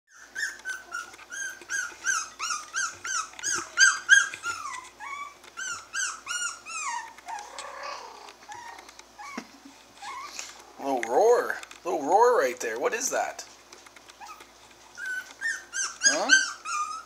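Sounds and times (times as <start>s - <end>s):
puppy crying: 0.1s - 10.6s, 14.2s - 17.0s.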